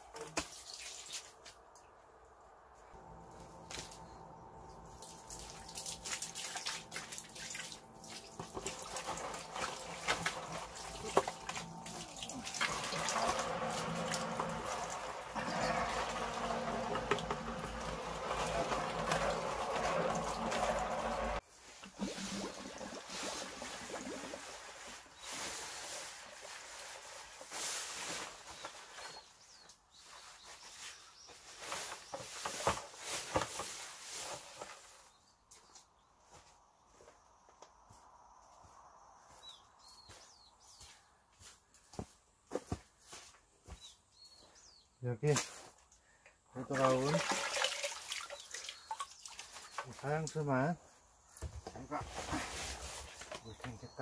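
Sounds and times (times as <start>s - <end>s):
water running into plastic bucket: 4.9s - 25.1s, 46.6s - 50.4s.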